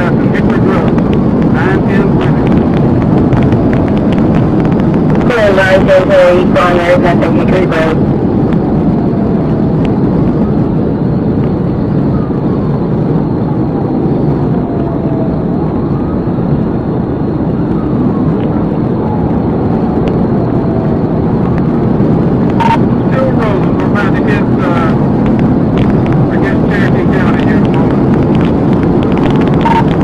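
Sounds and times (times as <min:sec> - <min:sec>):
faint siren wailing: 0:00.0 - 0:30.0
road tyre and engine noise: 0:00.0 - 0:30.0.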